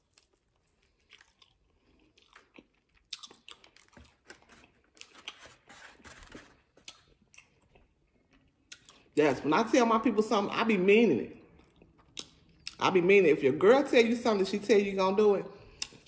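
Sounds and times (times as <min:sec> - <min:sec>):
person chewing food: 0:00.0 - 0:09.2, 0:11.4 - 0:12.8, 0:15.6 - 0:16.0.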